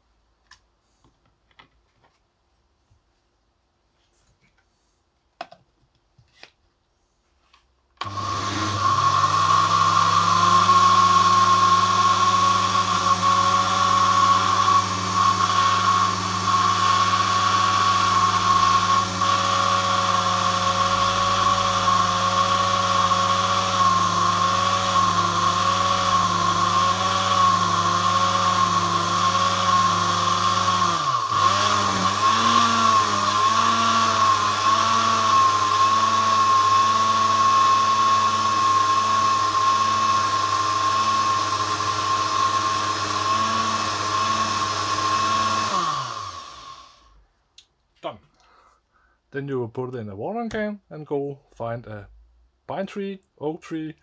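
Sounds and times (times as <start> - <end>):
blender motor whining: 8.0 - 47.2.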